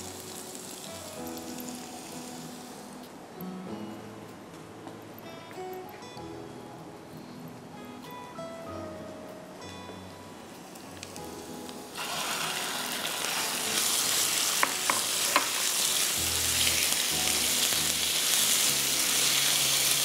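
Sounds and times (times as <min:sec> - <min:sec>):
meat sizzling in oil: 0:00.0 - 0:03.0, 0:10.6 - 0:20.0.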